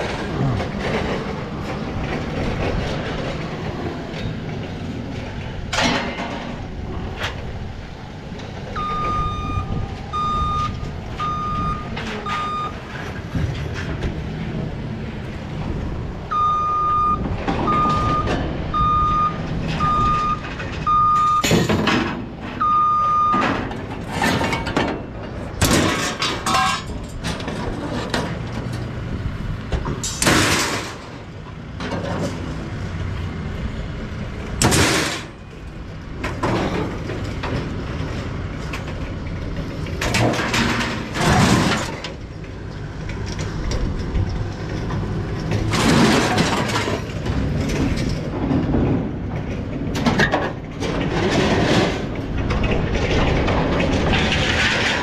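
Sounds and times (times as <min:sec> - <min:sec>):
scrap metal clanging and scraping: 0:00.0 - 0:07.5, 0:19.5 - 0:28.9, 0:29.8 - 0:32.6, 0:34.6 - 0:35.5, 0:36.2 - 0:55.0
engine rumble: 0:00.0 - 0:55.0
vehicle reversing beeper: 0:08.7 - 0:13.0, 0:16.3 - 0:21.6, 0:22.6 - 0:23.6.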